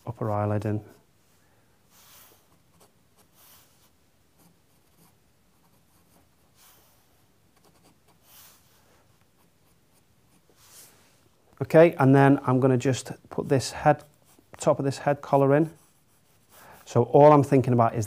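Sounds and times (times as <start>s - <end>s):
pencil scratching on paper: 1.9s - 11.0s, 13.4s - 16.9s.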